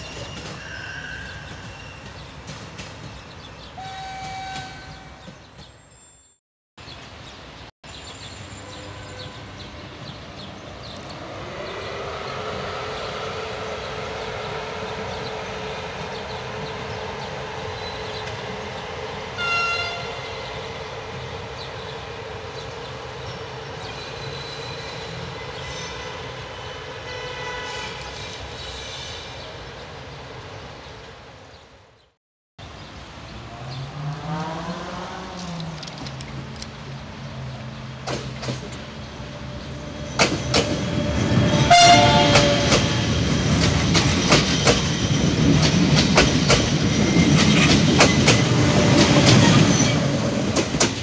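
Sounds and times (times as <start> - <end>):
train horn blast: 3.8 - 5.2, 19.4 - 20.6, 25.7 - 28.2, 40.9 - 43.1
electric locomotive humming: 8.6 - 28.1, 34.9 - 51.0.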